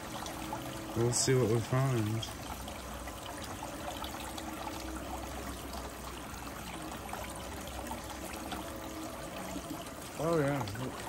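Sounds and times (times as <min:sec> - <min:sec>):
water splashing and trickling: 0:00.0 - 0:11.0.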